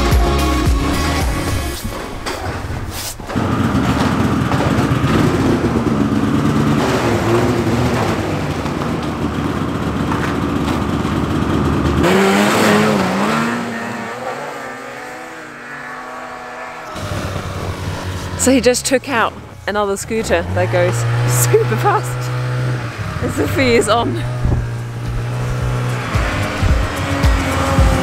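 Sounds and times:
distant snowmobile engine: 0.9s - 28.0s
snowmobile engine running hard: 3.3s - 15.7s, 16.6s - 28.0s.

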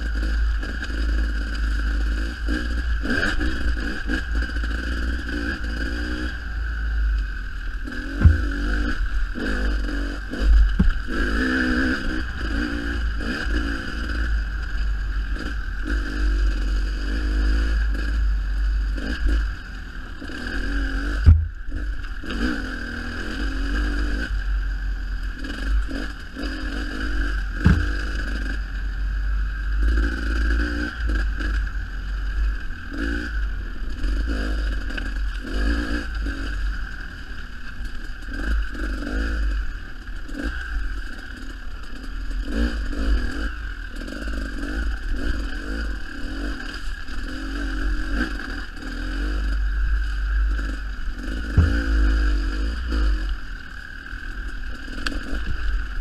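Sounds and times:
dirt bike engine revving: 0.0s - 56.0s
bike rattling over bumps: 7.8s - 12.6s, 25.8s - 28.5s, 50.6s - 52.7s
sharp knock: 8.2s - 8.6s, 21.2s - 21.6s, 27.6s - 27.9s, 51.6s - 52.0s.

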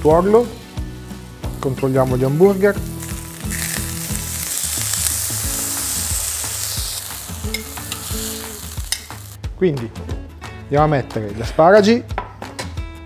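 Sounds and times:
light background music: 0.0s - 13.0s
patties sizzling in frying pan: 0.5s - 9.4s.

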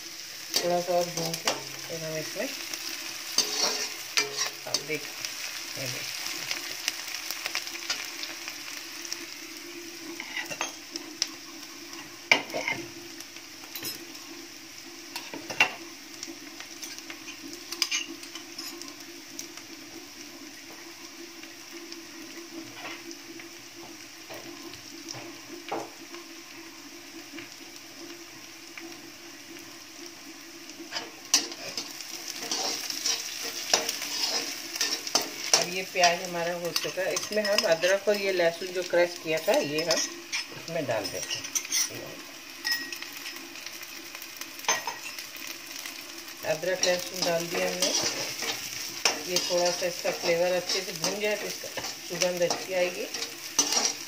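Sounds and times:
onions sizzling in oil: 0.0s - 54.0s
ladle scraping and clinking on pan: 3.4s - 4.7s, 30.9s - 38.0s, 39.8s - 42.0s, 46.8s - 54.0s.

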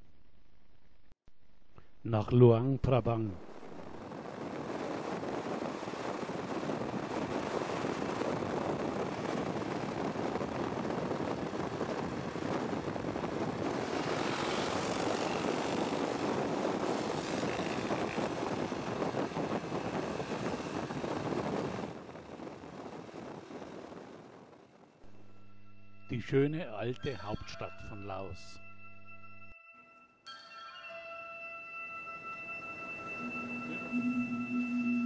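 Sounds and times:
wind rushing past microphone: 3.2s - 25.1s
motorcycle engine drone: 3.4s - 26.2s.

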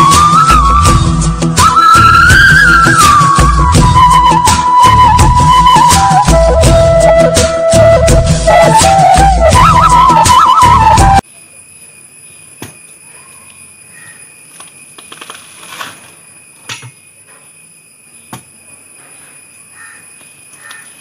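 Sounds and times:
flute music with rattles: 0.0s - 11.3s.

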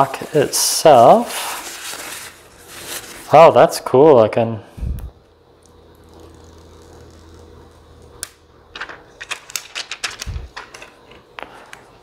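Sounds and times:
faint low hum: 4.6s - 11.8s
plastic and paper clicks and crackles: 8.8s - 11.1s.

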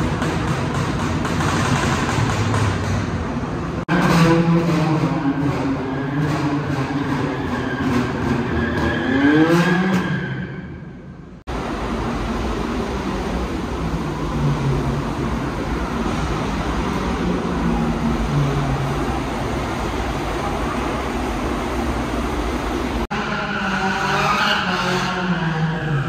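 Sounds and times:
traffic rumble: 10.9s - 26.0s
car engine revving: 21.0s - 26.0s.

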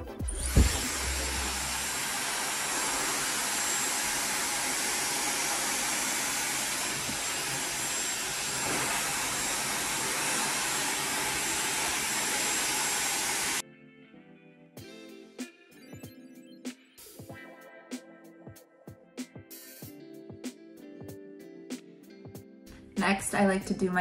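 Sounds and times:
hair dryer running: 0.0s - 13.6s
high steady whine: 0.3s - 6.0s.

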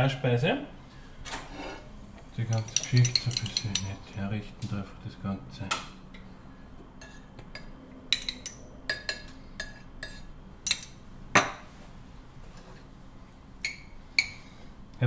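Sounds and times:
spoon clinking on porcelain cup: 2.5s - 3.9s.

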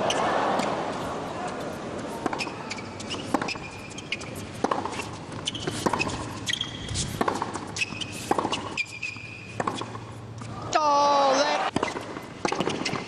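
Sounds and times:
shoes squeaking on court: 0.0s - 10.6s, 11.7s - 13.0s
tennis ball struck by rackets: 3.1s - 3.7s, 4.6s - 10.1s, 11.7s - 13.0s.

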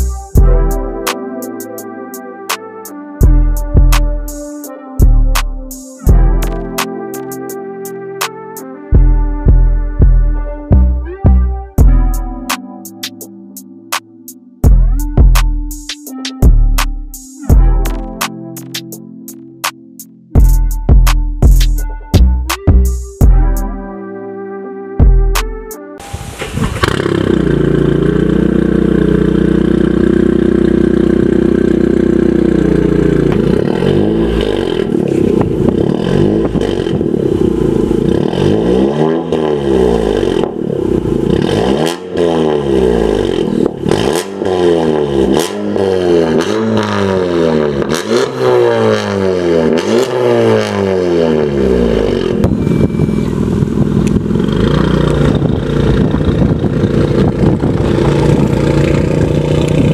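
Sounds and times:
car engine revving: 26.0s - 59.9s.

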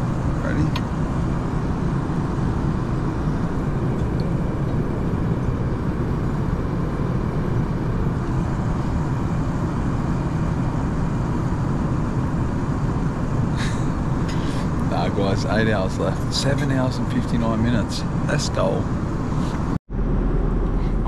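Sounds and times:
airliner cabin rumble: 0.0s - 21.0s.

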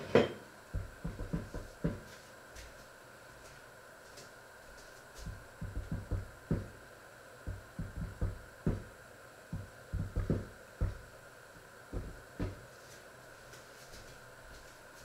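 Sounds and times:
lidded pot boiling and knocking: 0.0s - 2.1s, 5.3s - 6.8s, 7.5s - 8.9s, 9.5s - 11.0s, 11.9s - 12.6s
faint steady hum: 0.0s - 15.0s.

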